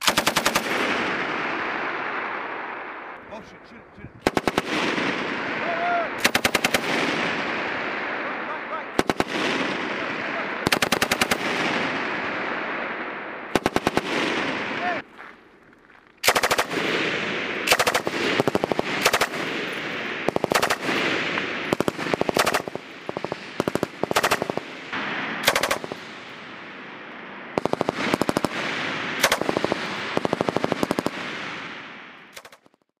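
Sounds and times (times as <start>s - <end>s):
machine gun firing bursts: 0.0s - 1.4s, 4.2s - 5.5s, 6.2s - 7.8s, 9.0s - 12.1s, 13.5s - 14.8s, 16.2s - 26.0s, 27.6s - 31.7s, 32.3s - 32.7s
gunshot echo: 24.1s - 26.2s.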